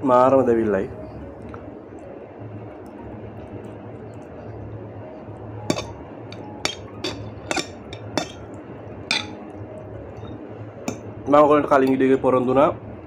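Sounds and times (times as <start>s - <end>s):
steady low hum: 0.0s - 13.0s
fork clinking against a plate: 5.7s - 8.5s, 9.1s - 9.5s.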